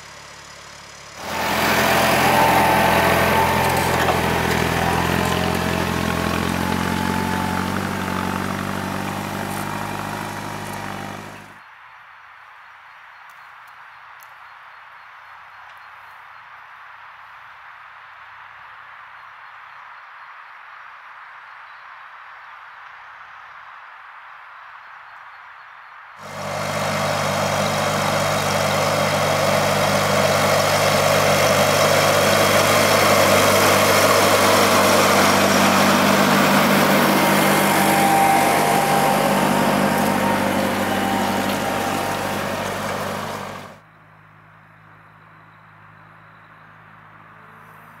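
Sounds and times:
faint engine hum: 0.0s - 11.6s, 26.2s - 48.0s
tractor engine under load: 0.0s - 11.6s, 26.2s - 43.8s.

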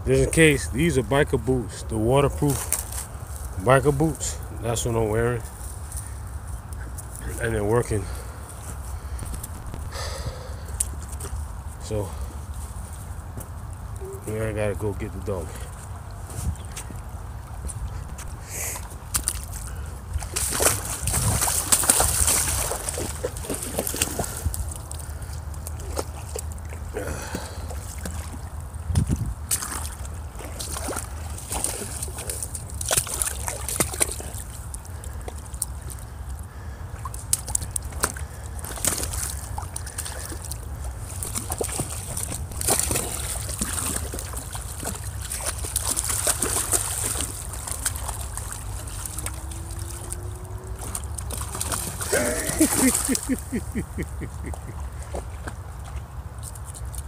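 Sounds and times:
person wading through water: 5.5s - 14.3s, 15.4s - 57.0s
dogs splashing in water: 18.2s - 57.0s.

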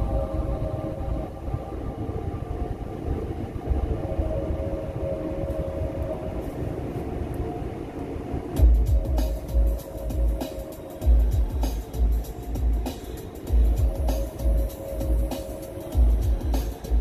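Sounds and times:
car engine and tyre rumble: 0.0s - 17.0s
steady tones: 0.0s - 17.0s.

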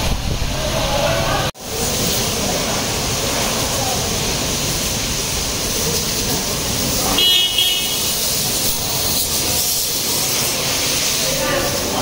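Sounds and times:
car-wash water spray hiss: 1.6s - 12.0s
vehicle horn toot: 7.1s - 8.3s.

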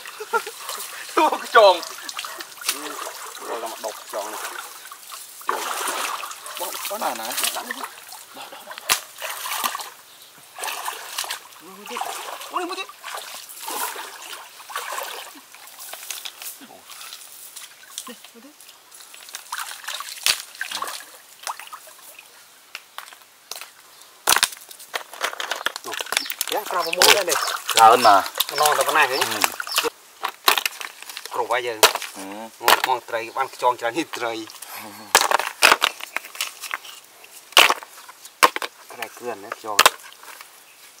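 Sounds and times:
hands splashing in stream water: 0.0s - 16.5s, 19.0s - 22.0s, 25.9s - 30.0s.

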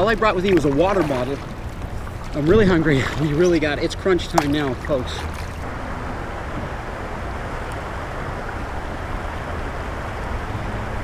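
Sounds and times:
river water rushing: 0.0s - 11.0s
wind on microphone: 5.2s - 11.0s.

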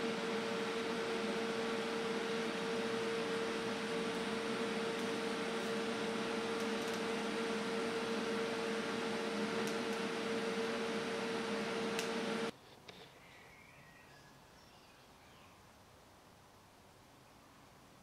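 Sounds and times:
welding arc hissing: 0.0s - 12.5s.

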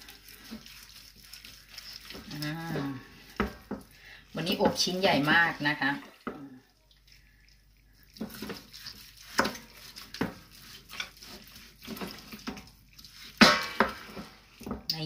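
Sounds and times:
knife chopping on wooden board: 9.3s - 12.2s.

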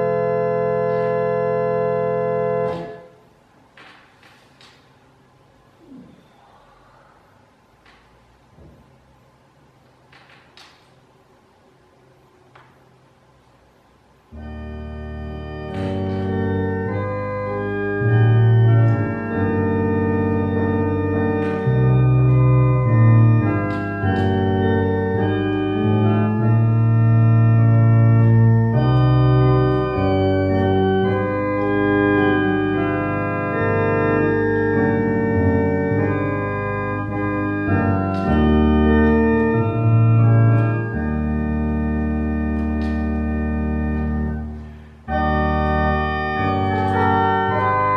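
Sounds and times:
church organ playing hymn: 0.0s - 3.3s, 14.2s - 47.9s.

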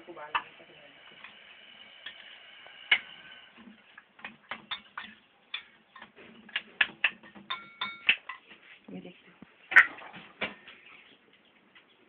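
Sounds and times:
utensils clicking against a pan: 0.3s - 8.4s.

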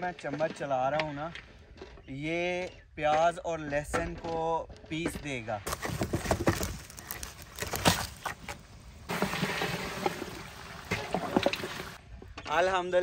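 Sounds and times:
frying sizzle: 9.1s - 12.0s.

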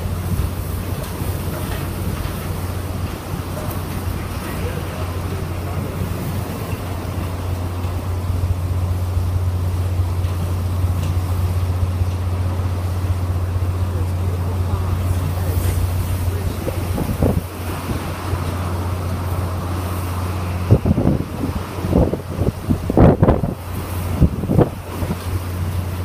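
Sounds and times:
strong wind blowing: 0.0s - 26.0s
wind buffeting microphone: 0.0s - 26.0s.

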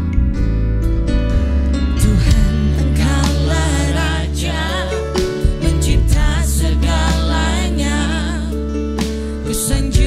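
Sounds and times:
electric bass: 0.0s - 10.0s
vocalists singing held notes: 2.1s - 8.7s.

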